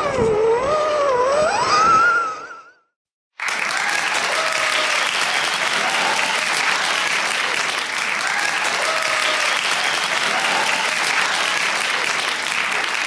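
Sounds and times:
crowd applauding: 0:03.4 - 0:13.0.

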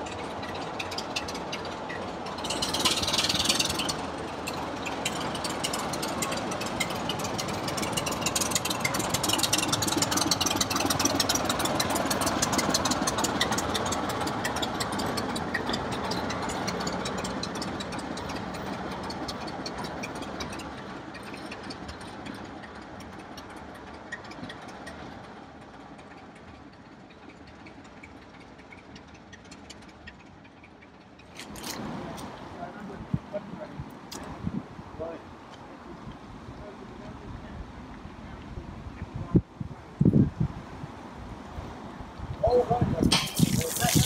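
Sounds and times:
rapid clattering clicks: 0:00.0 - 0:25.1
diesel locomotive engine running: 0:00.0 - 0:44.0.

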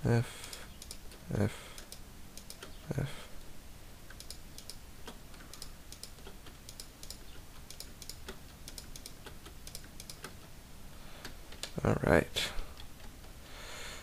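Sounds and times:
computer keyboard keys clicking: 0:00.4 - 0:01.2, 0:01.8 - 0:02.8, 0:04.1 - 0:10.5.

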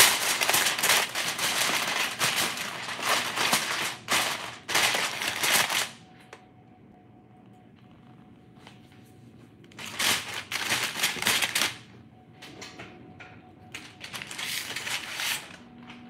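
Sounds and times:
aluminium foil crinkling: 0:00.0 - 0:06.0, 0:09.7 - 0:11.8, 0:13.7 - 0:15.7.

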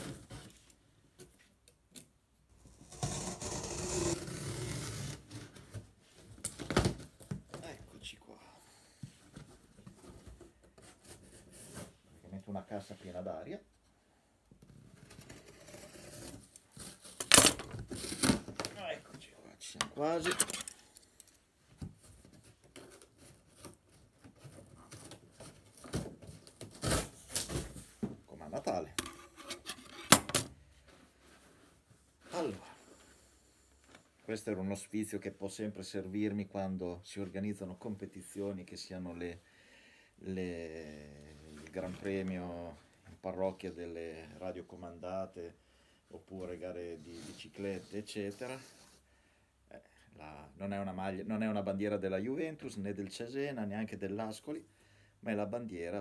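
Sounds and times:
cardboard tearing: 0:24.4 - 0:27.8.

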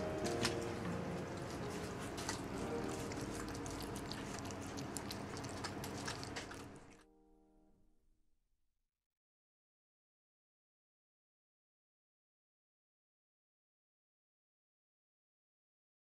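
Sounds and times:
cat chewing food: 0:00.0 - 0:07.0.

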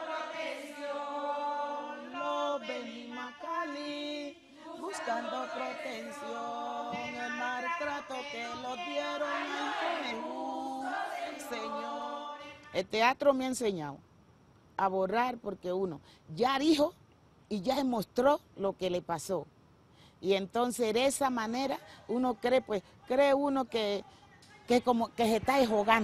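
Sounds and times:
women and girls singing in chorus: 0:00.0 - 0:12.8.

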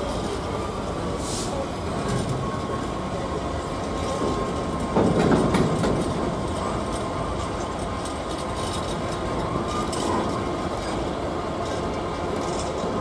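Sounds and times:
train rail noise: 0:00.0 - 0:13.0
brief hiss: 0:01.2 - 0:01.6.

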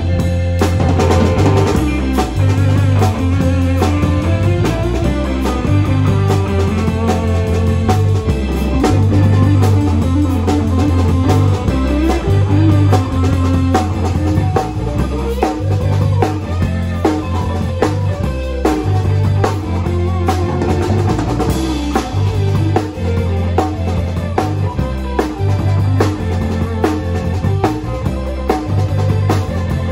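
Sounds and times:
drum kit beat: 0:00.0 - 0:29.9
electric guitar: 0:00.0 - 0:29.9
low bass line: 0:00.0 - 0:29.9.

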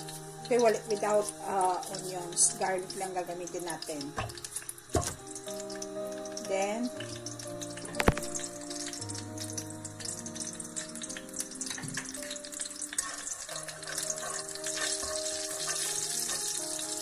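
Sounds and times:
garlic sizzling in oil: 0:00.0 - 0:17.0.

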